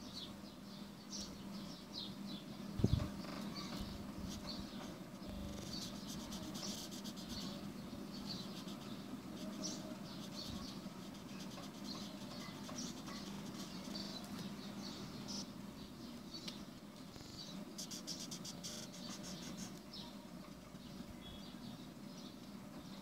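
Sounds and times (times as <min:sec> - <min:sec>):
faint low hum: 0:01.1 - 0:21.8
marker squeaking on paper: 0:05.3 - 0:07.6, 0:08.4 - 0:14.2, 0:17.8 - 0:19.8.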